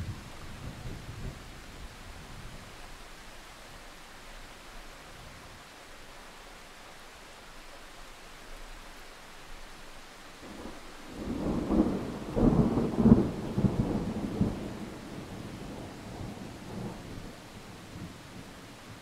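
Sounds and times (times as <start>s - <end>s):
steady rain: 0.0s - 19.0s
thunder rumbling: 10.4s - 19.0s.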